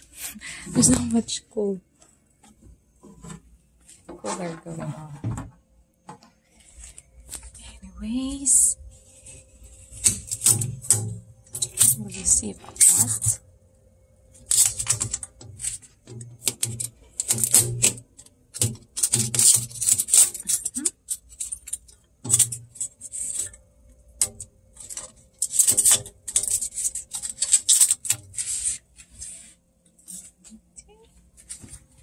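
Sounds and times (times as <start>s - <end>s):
plastic parts clicking and knocking: 9.9s - 13.4s, 14.4s - 28.8s.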